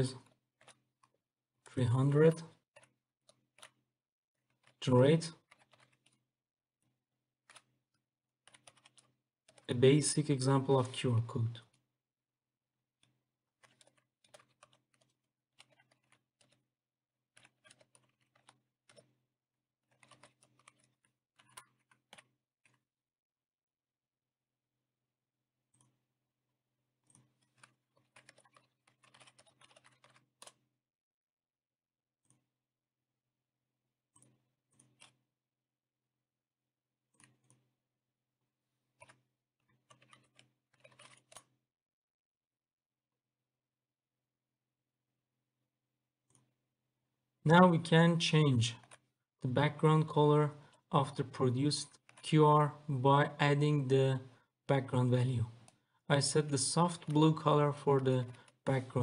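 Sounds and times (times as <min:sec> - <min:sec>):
typing on keyboard: 0:04.5 - 0:06.2, 0:08.4 - 0:09.8, 0:13.6 - 0:16.6, 0:17.4 - 0:19.1, 0:19.8 - 0:22.8, 0:27.4 - 0:30.6, 0:39.8 - 0:41.5.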